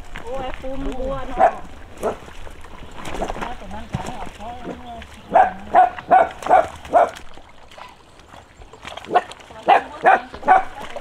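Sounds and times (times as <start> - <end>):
dog barking: 1.3 - 2.2, 5.3 - 7.2, 9.1 - 10.8.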